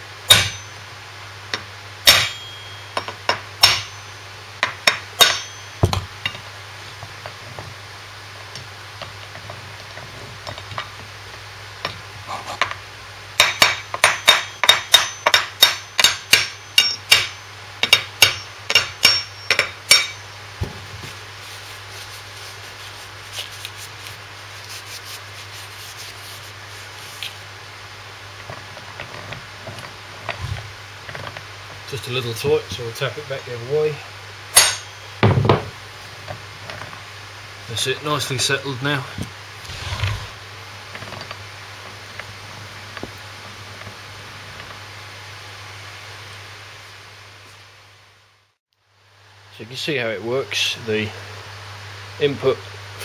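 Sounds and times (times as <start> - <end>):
hammer tapping steel bar: 2.1 - 6.0, 13.4 - 20.2.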